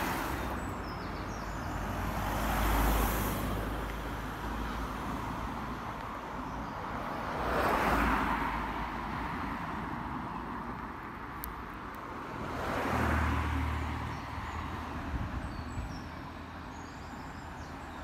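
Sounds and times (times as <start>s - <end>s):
cars passing on road: 0.0s - 18.0s.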